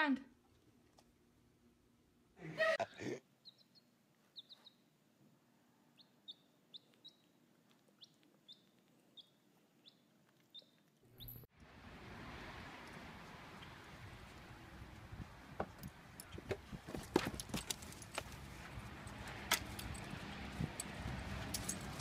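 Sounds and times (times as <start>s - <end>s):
baby chick peeping: 3.4s - 4.9s, 5.9s - 11.4s.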